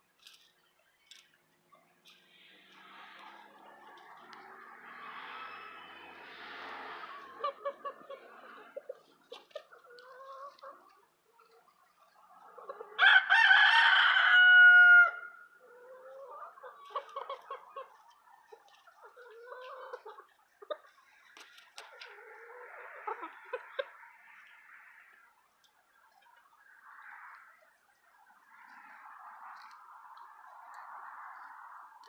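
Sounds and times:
chickens clucking softly: 1.7s - 13.0s, 15.6s - 32.0s
rooster crowing: 13.0s - 15.4s.

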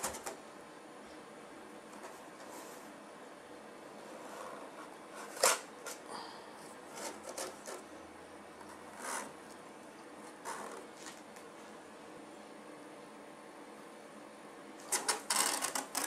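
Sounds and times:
cat scraping cardboard box: 4.0s - 6.1s, 6.9s - 7.8s, 8.7s - 9.4s, 10.2s - 11.2s.

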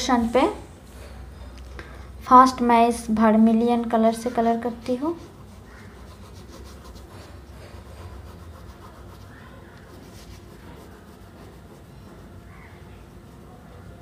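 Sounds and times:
oil pastel scratching on paper: 4.4s - 14.0s.

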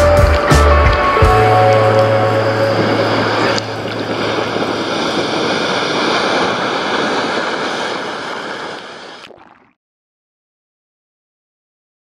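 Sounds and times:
wave breaking: 0.0s - 9.4s.

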